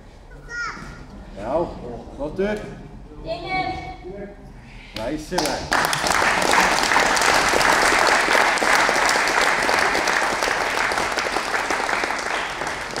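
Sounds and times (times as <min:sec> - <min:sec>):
spectators clapping: 0:05.0 - 0:13.0.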